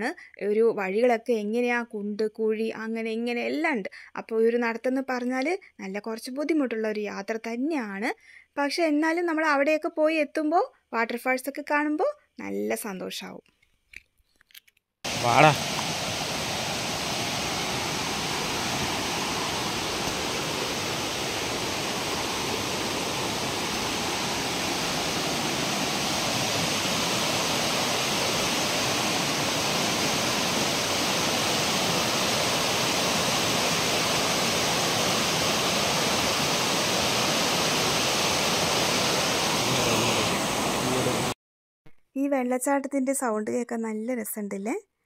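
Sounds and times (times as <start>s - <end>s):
stream rushing over boulders: 15.1s - 41.4s.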